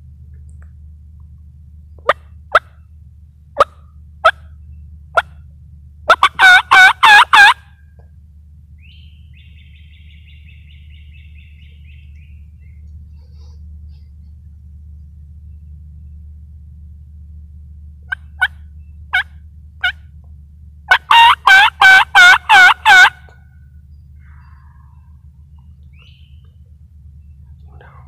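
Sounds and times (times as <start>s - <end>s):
turkey yelping: 6.1s - 7.7s, 18.1s - 20.0s, 20.9s - 23.3s.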